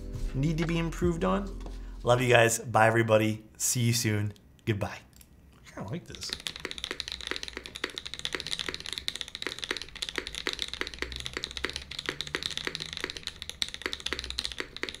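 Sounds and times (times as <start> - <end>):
fast mechanical keyboard typing: 6.1 - 15.0.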